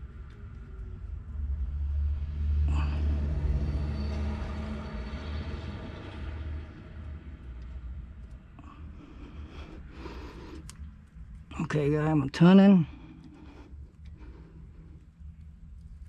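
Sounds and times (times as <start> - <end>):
passing vehicle engine rumble: 0.0 - 10.3.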